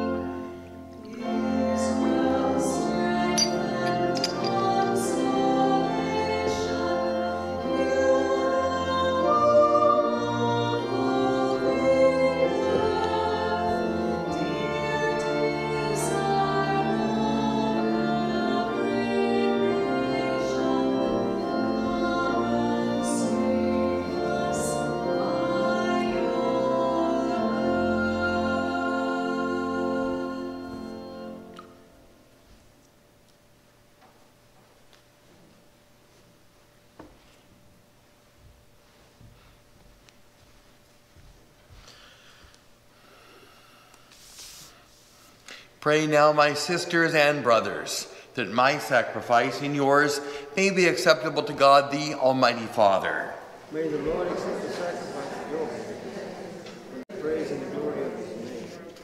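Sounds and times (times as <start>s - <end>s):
woman singing a hymn: 0.0s - 31.9s
church organ: 0.0s - 59.0s.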